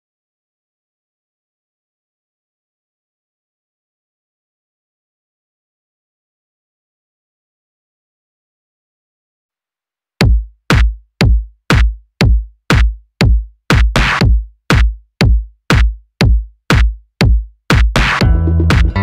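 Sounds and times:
drum machine kick drum: 0:10.2 - 0:19.0
electronic music: 0:17.7 - 0:19.0.

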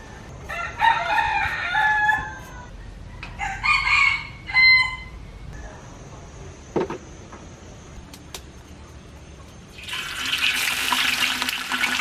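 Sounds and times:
rooster crowing: 0:00.4 - 0:05.2.

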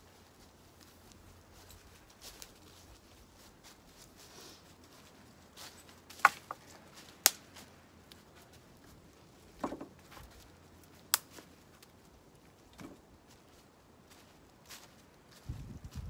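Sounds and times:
footsteps in dry leaves: 0:00.0 - 0:12.2, 0:13.1 - 0:16.0
dry branches cracking: 0:06.1 - 0:13.0.

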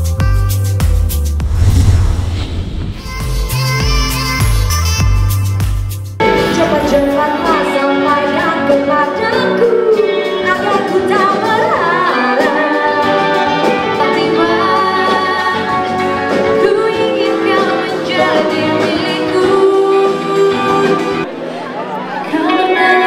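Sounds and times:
woman singing into a microphone: 0:06.2 - 0:21.3, 0:22.2 - 0:23.0.

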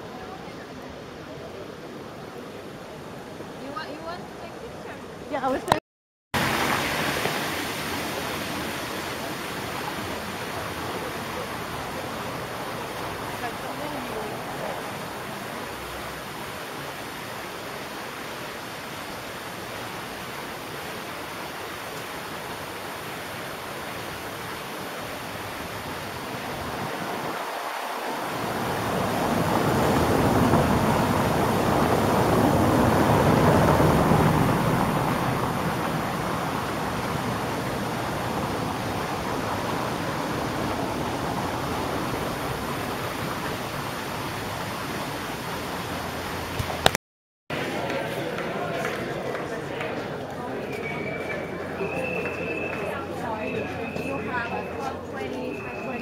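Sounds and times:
street rushing noise: 0:06.4 - 0:56.0.

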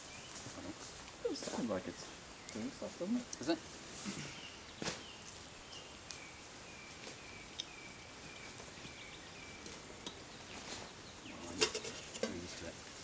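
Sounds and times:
bird chirping: 0:00.0 - 0:12.7.

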